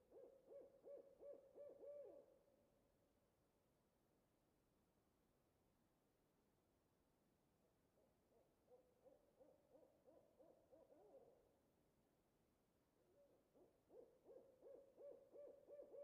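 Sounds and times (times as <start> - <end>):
owl hooting: 0.1 - 2.3, 8.7 - 11.3, 13.2 - 16.0.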